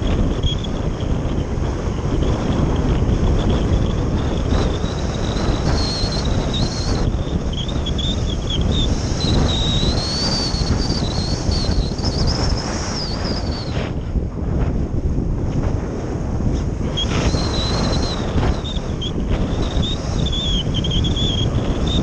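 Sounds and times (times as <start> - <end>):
wind buffeting microphone: 0.0 - 22.0
thin high whistle: 4.5 - 13.9, 16.9 - 22.0.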